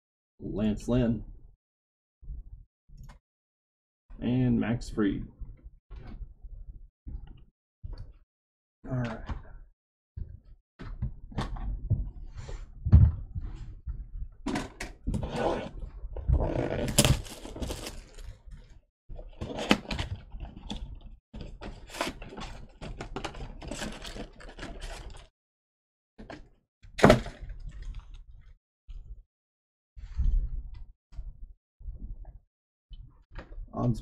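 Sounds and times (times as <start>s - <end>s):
cards and packaging being handled: 16.8s - 18.3s.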